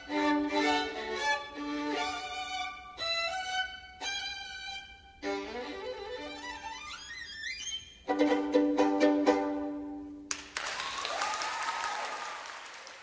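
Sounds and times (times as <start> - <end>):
violin piece: 0.0 - 10.3
audience applause: 10.3 - 13.0.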